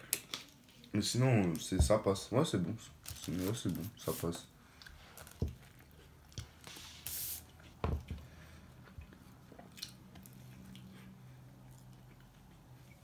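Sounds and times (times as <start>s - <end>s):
person chewing food: 4.6s - 6.6s, 7.5s - 13.0s
short hiss: 7.0s - 7.4s.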